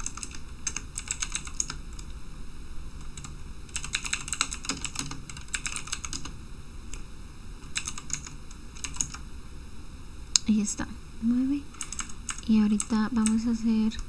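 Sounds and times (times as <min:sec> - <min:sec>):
computer keyboard typing: 0:00.0 - 0:02.1, 0:03.0 - 0:06.3, 0:07.6 - 0:09.2, 0:11.7 - 0:14.0.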